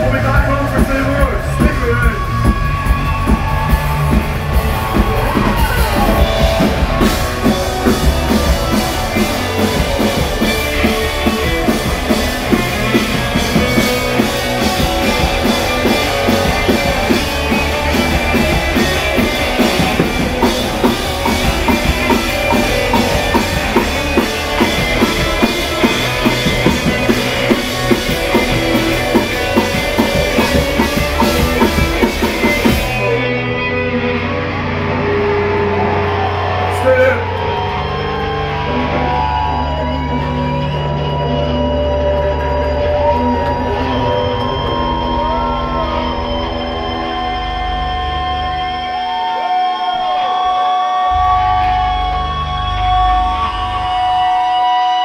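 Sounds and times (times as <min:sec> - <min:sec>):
drum kit driving beat: 0:00.0 - 0:33.7
electric guitars: 0:00.0 - 0:55.0.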